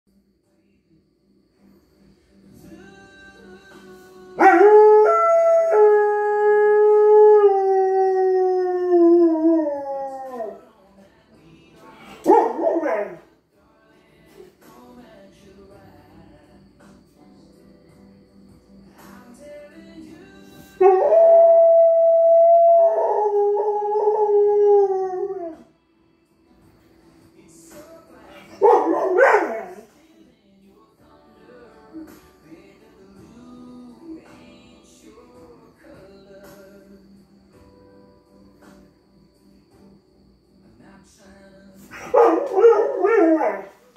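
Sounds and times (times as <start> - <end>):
faint music: 0.1 - 43.9
dog howling: 4.4 - 10.6, 12.1 - 13.2, 20.8 - 25.7, 28.3 - 29.9, 41.9 - 43.9.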